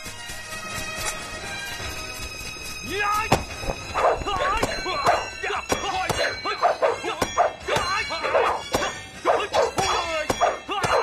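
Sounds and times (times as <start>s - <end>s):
fighters shouting and grunting: 2.9s - 11.0s.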